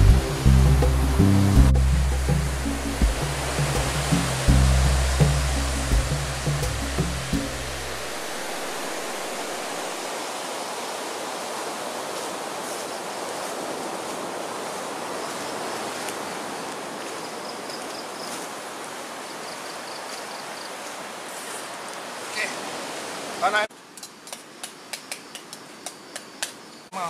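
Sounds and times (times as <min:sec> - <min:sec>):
surf breaking on beach: 0:00.0 - 0:17.2.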